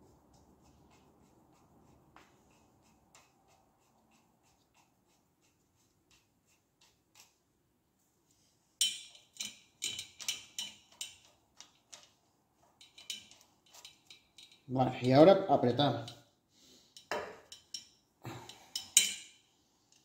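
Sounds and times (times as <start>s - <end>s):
metal tools clicking on metal: 8.8s - 12.2s, 12.8s - 15.2s, 17.0s - 20.0s.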